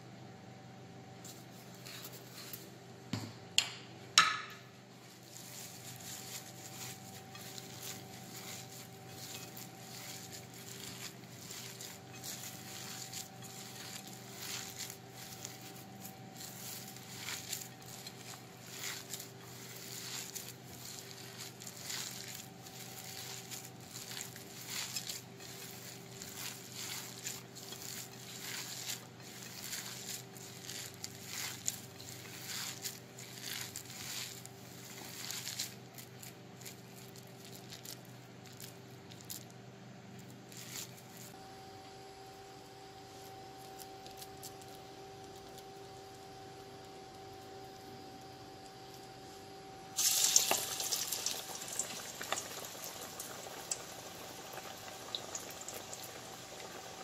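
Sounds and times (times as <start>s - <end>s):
hand squishing wet batter: 5.0s - 41.4s.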